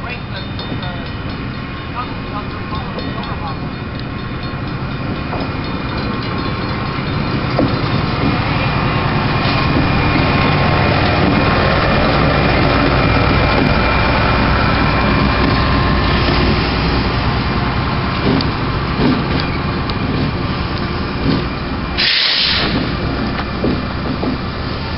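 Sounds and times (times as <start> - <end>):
diesel locomotive engine passing: 0.0 - 24.9.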